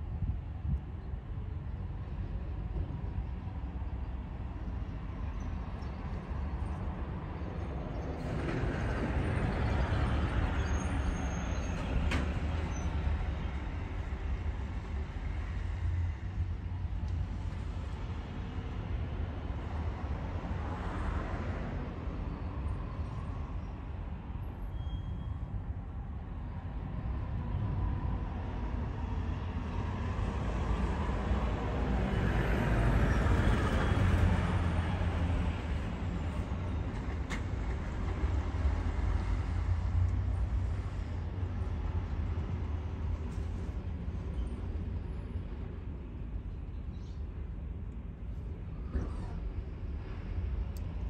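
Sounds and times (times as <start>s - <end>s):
road traffic passing: 25.3s - 51.0s.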